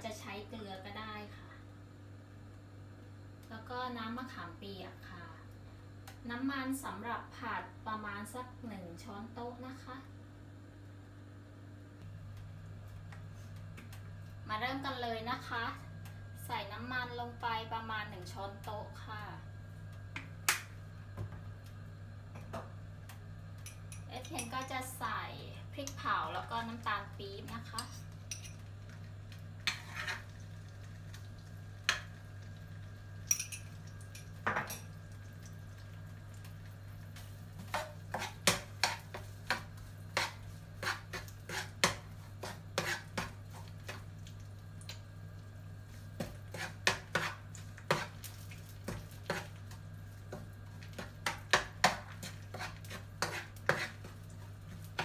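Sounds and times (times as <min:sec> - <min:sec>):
steady low hum: 0:00.0 - 0:55.0
spoon and spatula scraping a wok: 0:29.6 - 0:30.4, 0:37.2 - 0:44.0, 0:46.2 - 0:55.0.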